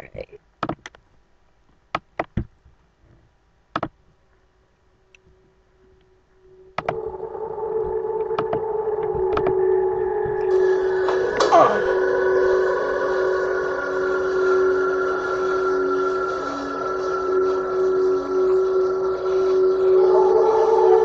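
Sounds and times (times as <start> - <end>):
droning soundtrack from speakers: 5.0 - 21.0.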